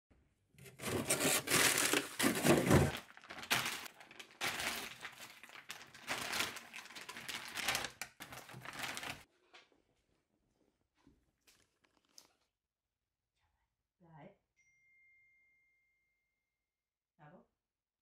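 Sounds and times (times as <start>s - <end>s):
plastic pouch crinkling: 0.6s - 9.3s.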